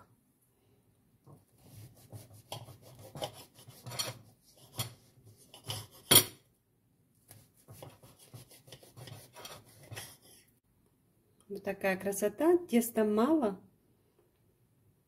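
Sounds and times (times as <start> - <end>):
knife sawing through bread roll: 1.6 - 4.9, 7.3 - 10.4.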